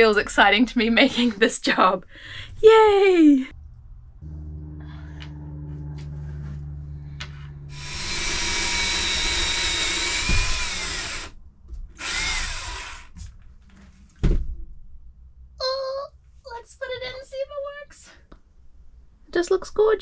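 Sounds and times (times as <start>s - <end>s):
cordless drill boring into wood: 7.7s - 11.3s, 12.0s - 13.2s.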